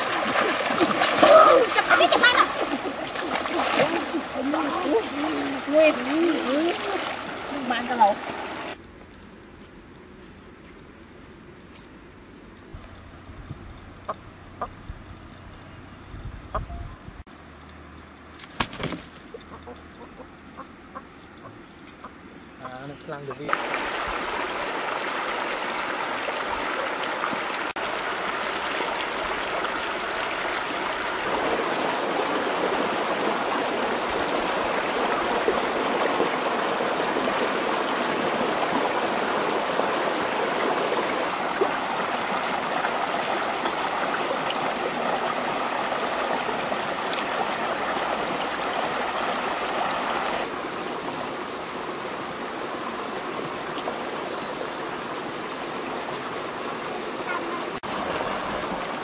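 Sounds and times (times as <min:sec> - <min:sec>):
stream rushing over rocks: 0:00.0 - 0:08.8, 0:23.4 - 0:59.0.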